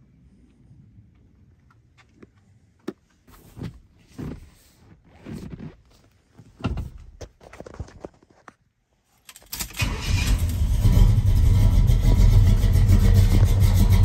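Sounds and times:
rustles and thumps in vehicle cab: 0:03.2 - 0:08.4.

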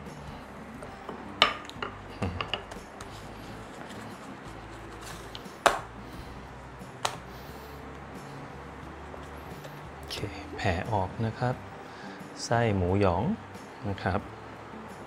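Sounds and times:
kitchen tools knocking on stone: 0:01.1 - 0:02.8.

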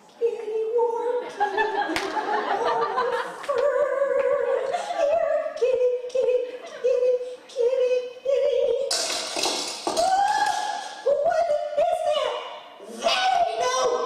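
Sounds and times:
woman singing: 0:00.0 - 0:01.6, 0:03.4 - 0:08.9.

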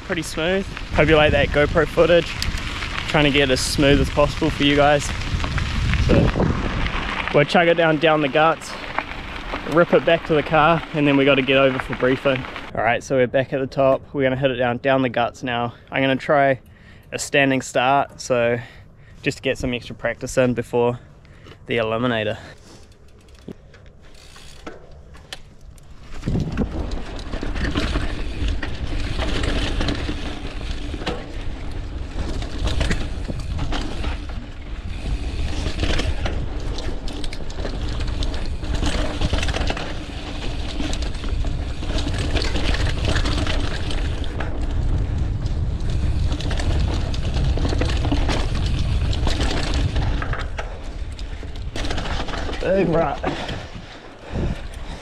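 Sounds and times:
bike clicks: 0:00.0 - 0:12.7, 0:21.1 - 0:55.0
bike rattling and knocking: 0:00.0 - 0:12.7, 0:21.5 - 0:55.0
wind rush and tyre noise: 0:00.0 - 0:12.8, 0:24.2 - 0:55.0.

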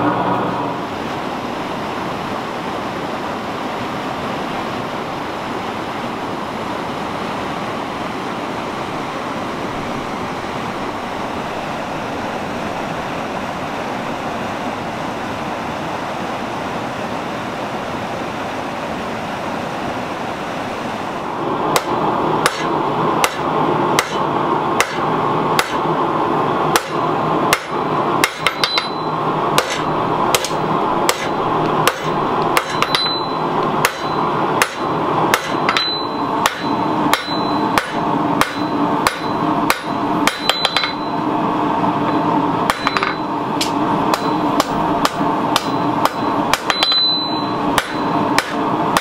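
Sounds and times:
hammer blows on anvil: 0:21.7 - 0:24.2, 0:24.8 - 0:25.0, 0:25.6 - 0:25.8, 0:26.7 - 0:41.2, 0:42.1 - 0:49.0.

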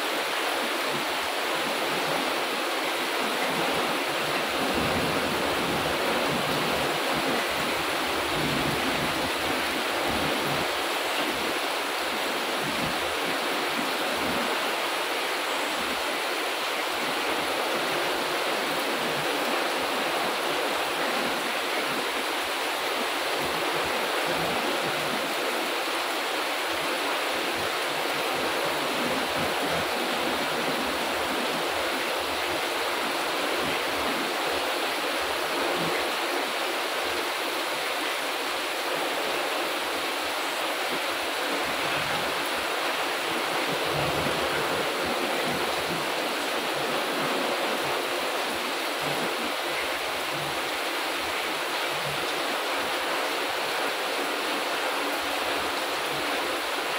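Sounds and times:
heavy rain on plants and paving: 0:00.0 - 0:56.9.

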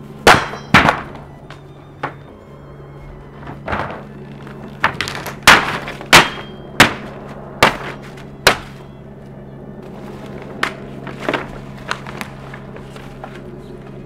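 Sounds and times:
steady low hum: 0:00.0 - 0:14.0
painting smashing thuds and cracks: 0:00.2 - 0:02.3, 0:03.4 - 0:08.9.

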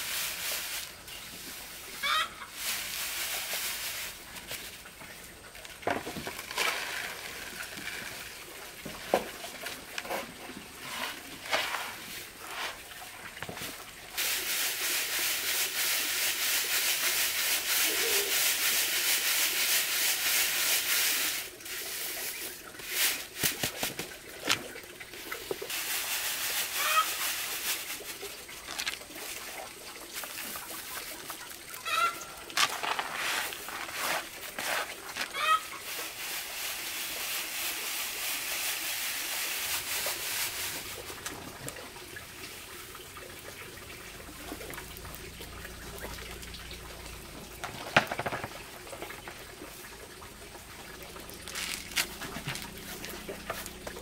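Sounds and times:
grain pouring into plastic basin: 0:00.0 - 0:04.8, 0:05.6 - 0:41.9, 0:45.7 - 0:49.8, 0:51.0 - 0:54.0
grain rustling in a sieve: 0:00.0 - 0:41.9, 0:47.4 - 0:50.4, 0:51.1 - 0:54.0
chicken clucking: 0:02.0 - 0:02.5, 0:26.7 - 0:27.2, 0:30.9 - 0:32.3, 0:35.3 - 0:35.8.

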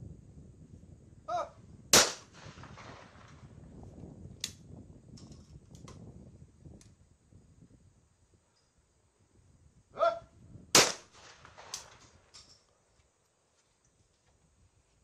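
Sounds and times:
person shouting: 0:01.3 - 0:01.6, 0:10.0 - 0:10.3
shotgun shot with echo: 0:01.9 - 0:03.1, 0:10.8 - 0:11.9.

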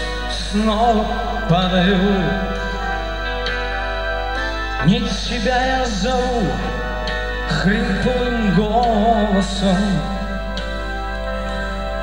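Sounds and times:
man singing: 0:00.0 - 0:03.0, 0:04.8 - 0:10.6
sustained keyboard chords: 0:00.0 - 0:12.0.

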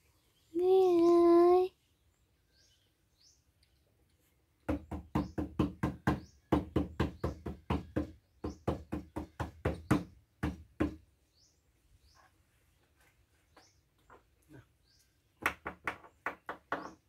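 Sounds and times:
sharp knocks on wood: 0:04.6 - 0:11.0, 0:15.4 - 0:17.0.

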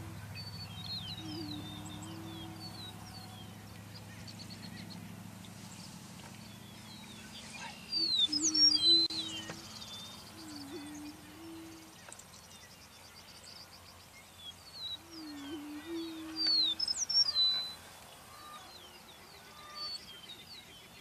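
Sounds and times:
low hollow booming bird calls: 0:00.0 - 0:05.2, 0:06.2 - 0:14.0
higher sliding bird calls: 0:15.0 - 0:20.0.

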